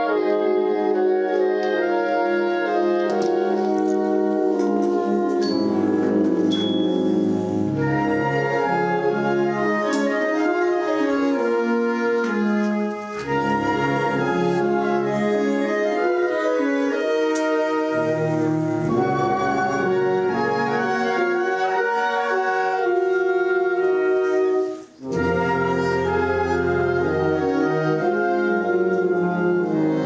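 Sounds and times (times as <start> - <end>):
concert band playing brass chords: 1.7 - 10.1, 17.3 - 21.2.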